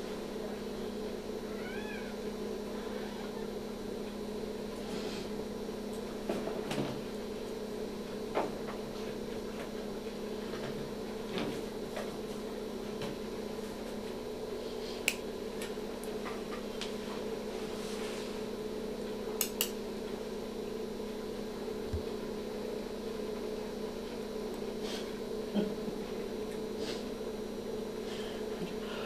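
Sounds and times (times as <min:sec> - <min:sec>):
low equipment hum: 0:00.0 - 0:29.0.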